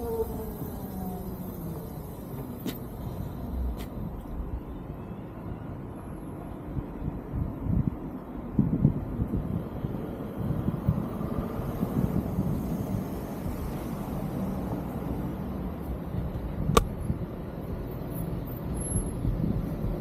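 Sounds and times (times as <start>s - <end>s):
road traffic rumble: 0.0s - 20.0s
sharp click: 16.7s - 17.0s.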